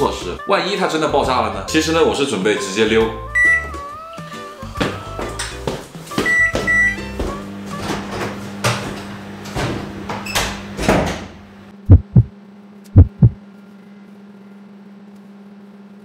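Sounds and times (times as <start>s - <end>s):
microwave oven humming: 3.4s - 11.7s
double thumps: 11.9s - 12.3s, 13.0s - 13.4s.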